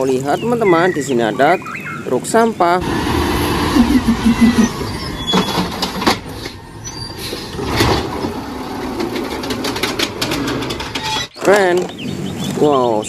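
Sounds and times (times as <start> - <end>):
garbage truck running: 2.8 - 11.4
mechanical arm knocks and clatters: 7.6 - 11.4.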